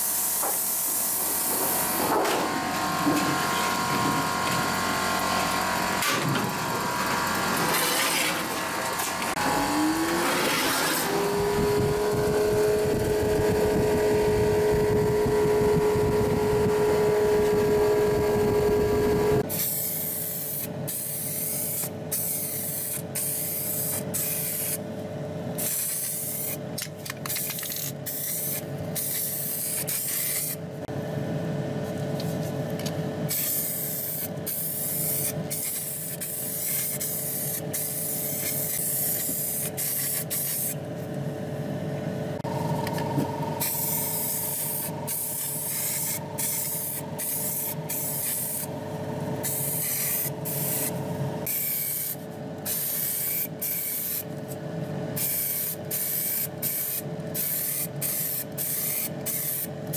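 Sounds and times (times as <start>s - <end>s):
steady hum: 0.0s - 55.2s
paint spray hissing: 19.6s - 24.8s, 25.6s - 26.6s, 27.3s - 30.6s, 33.3s - 40.8s, 43.6s - 48.7s, 49.4s - 50.9s, 51.5s - 54.2s, 55.2s - 59.7s.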